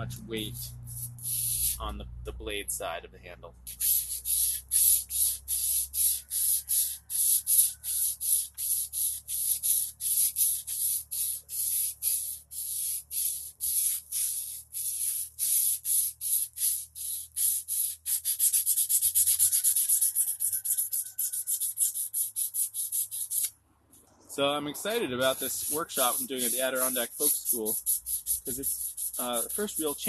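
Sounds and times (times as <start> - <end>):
sandpaper scraping a blade: 0.3 - 2.0, 3.7 - 23.5, 24.8 - 30.0.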